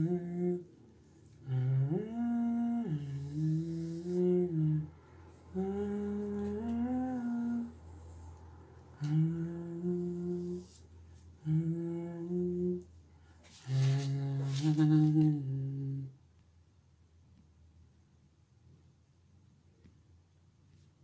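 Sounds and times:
man humming: 0:00.0 - 0:00.7, 0:01.4 - 0:04.9, 0:05.5 - 0:07.8, 0:09.0 - 0:10.8, 0:11.4 - 0:12.9, 0:13.6 - 0:16.2.

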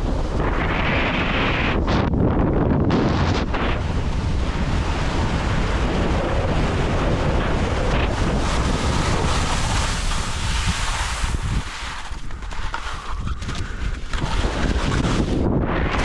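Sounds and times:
wind buffeting microphone: 0:00.0 - 0:16.0
skis hissing on snow: 0:08.1 - 0:15.4.

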